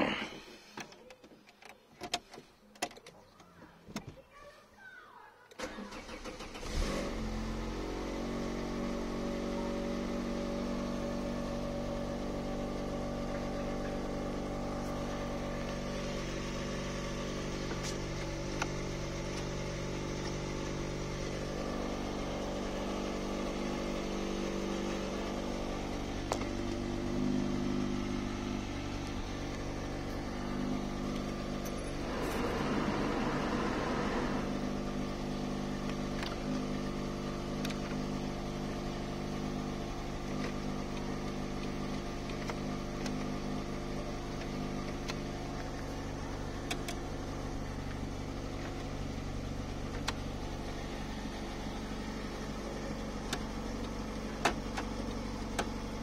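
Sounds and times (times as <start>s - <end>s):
car engine idling: 5.6s - 56.0s
starter motor cranking: 32.0s - 34.8s.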